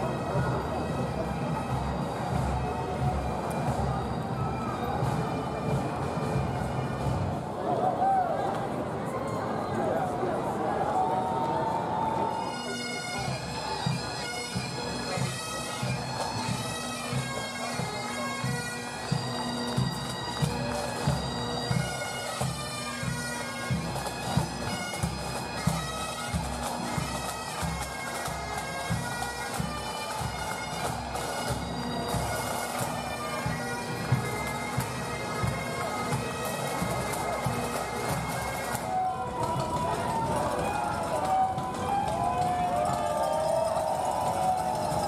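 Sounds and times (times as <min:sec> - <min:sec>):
bagpipes playing a tune: 0:00.0 - 0:07.5, 0:11.9 - 0:45.0.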